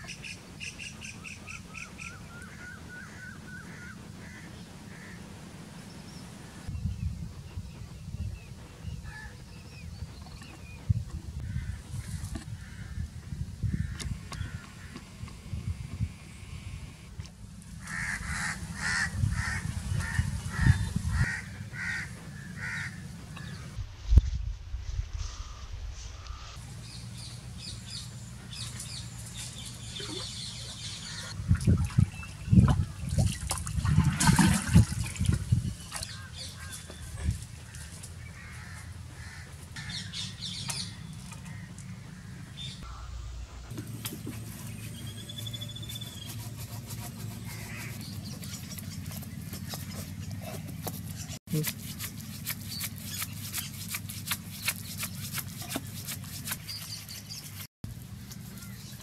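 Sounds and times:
water sloshing and gurgling: 0:29.9 - 0:36.1, 0:40.6 - 0:42.1
knife scraping fruit husk: 0:43.8 - 0:57.7.

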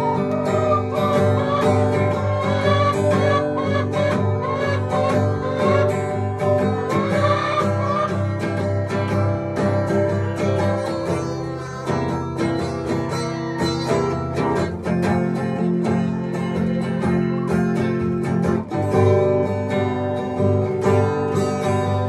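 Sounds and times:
strummed acoustic guitar chords: 0:00.0 - 0:22.0.

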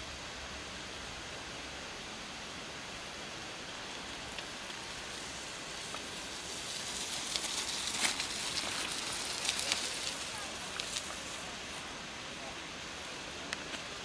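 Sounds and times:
steady hiss: 0:00.0 - 0:14.0
bike tyres crunching on gravel: 0:03.6 - 0:14.0.

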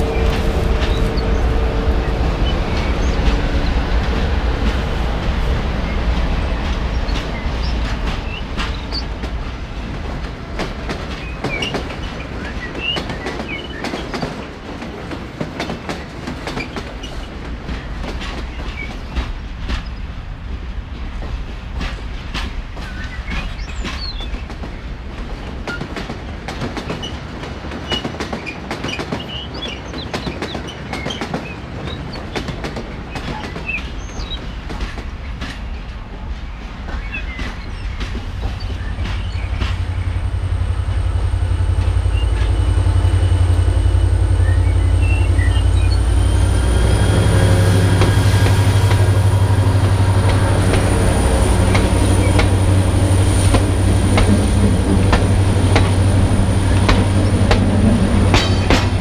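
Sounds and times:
diesel locomotive engine rumble: 0:00.0 - 0:59.0
wheels clicking over rail joints: 0:21.0 - 0:59.0.

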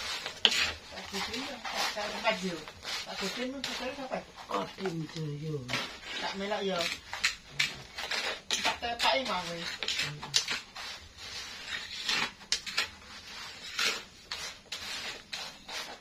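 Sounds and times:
spatula scraping in sand: 0:00.0 - 0:04.9, 0:05.9 - 0:16.0
person speaking: 0:01.2 - 0:06.6.

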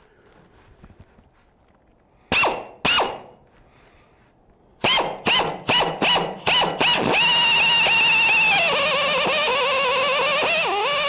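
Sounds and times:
pneumatic air drill spinning: 0:02.3 - 0:03.3, 0:04.8 - 0:11.0.

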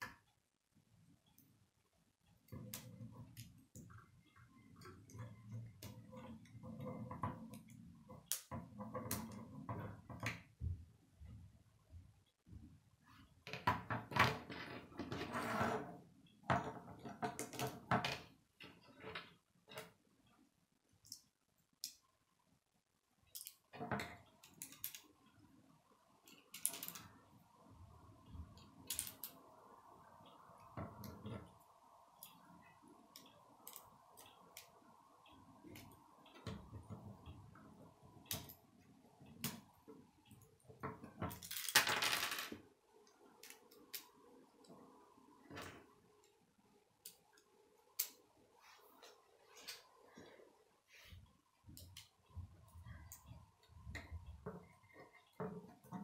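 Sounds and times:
plastic pieces clicking and rattling: 0:26.5 - 0:27.1, 0:41.3 - 0:42.3.

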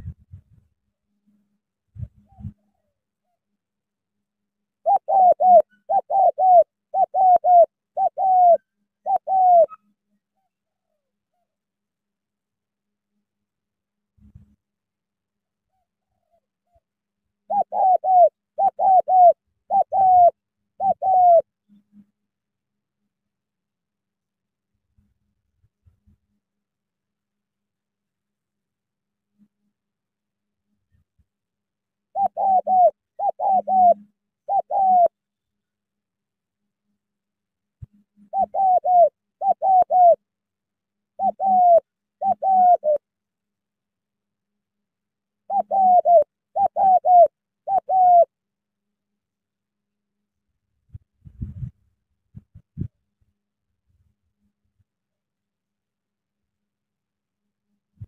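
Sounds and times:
dove cooing: 0:04.8 - 0:11.4, 0:17.4 - 0:21.5, 0:32.1 - 0:35.2, 0:37.9 - 0:40.2, 0:41.2 - 0:43.0, 0:45.5 - 0:48.4.

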